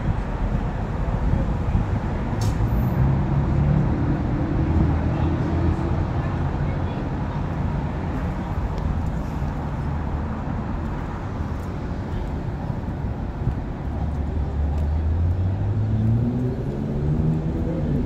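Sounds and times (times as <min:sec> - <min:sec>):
traffic rumble: 0:00.0 - 0:18.0
vehicle engine accelerating: 0:02.4 - 0:06.1, 0:13.9 - 0:18.0.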